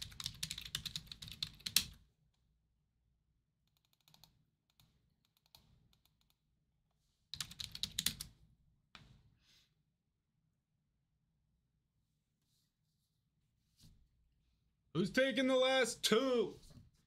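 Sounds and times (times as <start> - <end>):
faint keyboard typing: 0.0 - 2.0, 3.7 - 6.4, 7.3 - 8.4.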